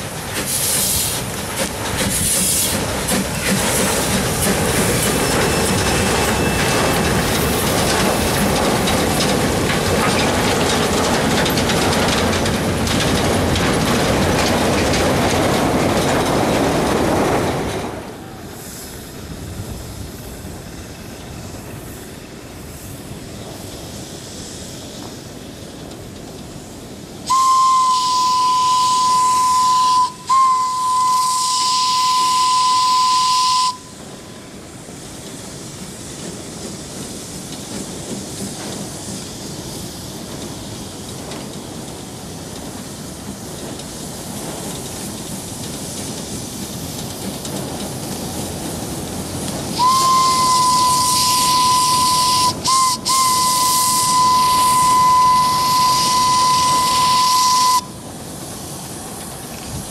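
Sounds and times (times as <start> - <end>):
hissing steam: 0.0 - 59.9
train running noise: 0.0 - 59.9
steam whistle: 27.3 - 34.3, 49.8 - 58.0.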